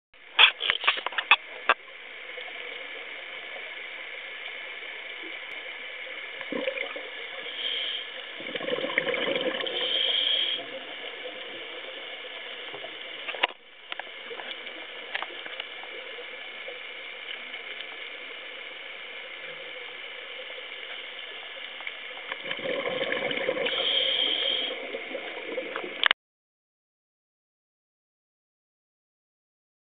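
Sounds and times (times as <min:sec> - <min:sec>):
hiss of water: 0:06.4 - 0:13.1, 0:23.2 - 0:25.9
exhaled bubbles rushing: 0:06.5 - 0:07.2, 0:08.3 - 0:10.0, 0:22.4 - 0:23.9, 0:24.7 - 0:26.0.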